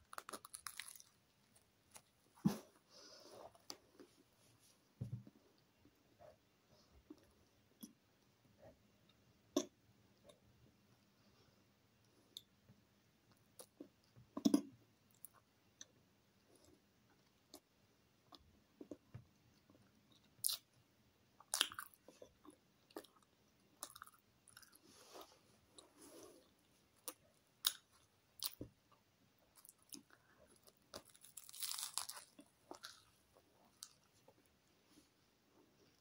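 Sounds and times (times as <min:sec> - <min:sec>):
person chewing crusty bread: 0:00.0 - 0:02.1, 0:21.4 - 0:28.7, 0:29.5 - 0:34.4.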